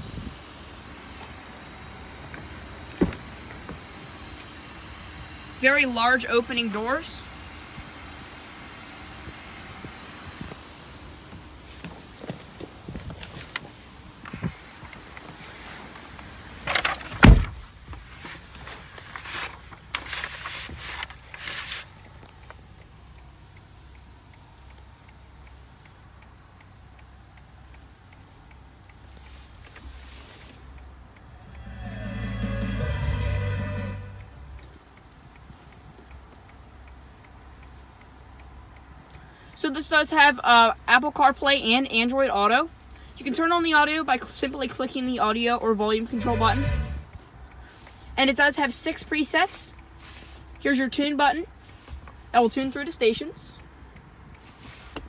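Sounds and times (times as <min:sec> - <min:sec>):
background hiss: 0:00.0 - 0:44.4, 0:45.0 - 0:55.0
truck door shutting: 0:02.4 - 0:03.8, 0:16.8 - 0:17.7
faint ticks: 0:20.8 - 0:31.6, 0:34.2 - 0:39.7, 0:47.1 - 0:48.2.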